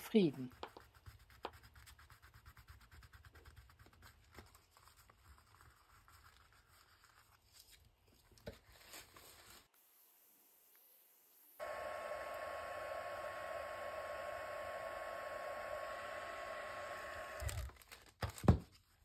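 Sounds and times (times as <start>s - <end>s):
fingers rubbing paper: 0.3s - 7.8s.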